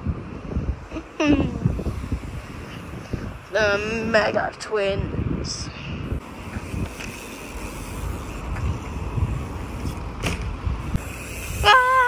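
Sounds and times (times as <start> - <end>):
wind on microphone: 0.0 - 12.0
person calling out: 11.6 - 12.0.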